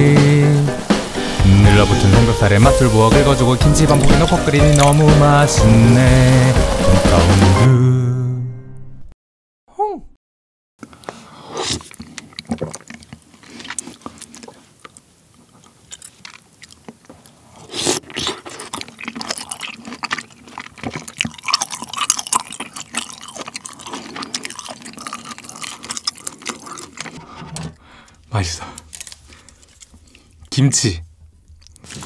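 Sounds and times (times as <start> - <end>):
man chewing food: 2.7 - 7.4, 10.8 - 30.5, 31.1 - 32.0.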